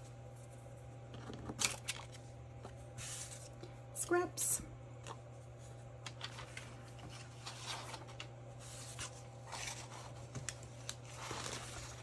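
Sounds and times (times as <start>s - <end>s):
low steady hum: 0.0s - 12.0s
paper rustling: 6.0s - 12.0s.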